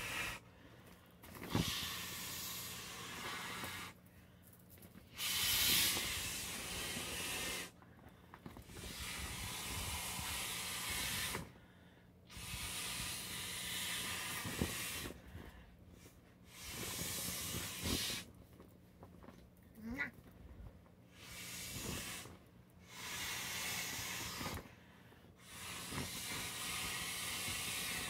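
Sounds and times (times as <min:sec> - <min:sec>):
breath blown through inflatable valve: 0:00.0 - 0:00.7, 0:01.3 - 0:04.0, 0:05.1 - 0:07.8, 0:08.6 - 0:15.6, 0:16.4 - 0:18.3, 0:21.1 - 0:28.0.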